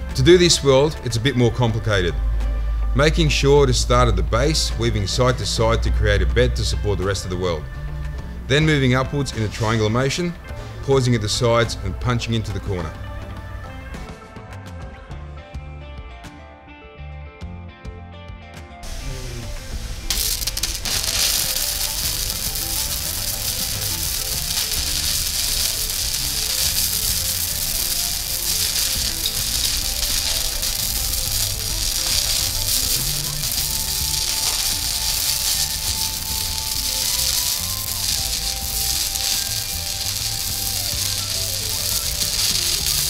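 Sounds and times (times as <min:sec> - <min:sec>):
background music: 0:00.0 - 0:43.0
welding arc crackling: 0:18.8 - 0:43.0.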